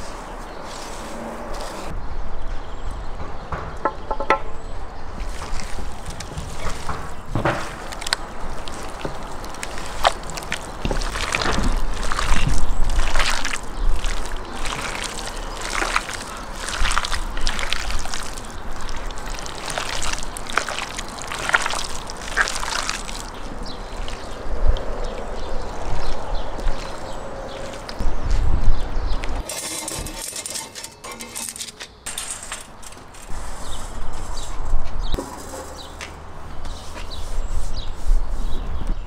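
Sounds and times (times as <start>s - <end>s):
raw meat squelching: 5.2s - 28.0s.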